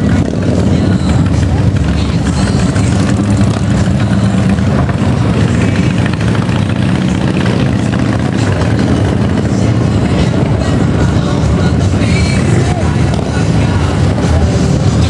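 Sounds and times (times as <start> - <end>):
motorcycle engines idling: 0.0 - 15.0.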